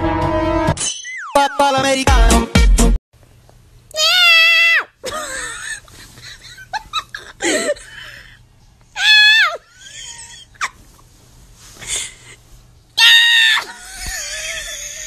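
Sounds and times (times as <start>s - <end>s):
loud high-pitched cries: 4.0s - 5.0s, 9.0s - 10.6s, 13.0s - 15.0s.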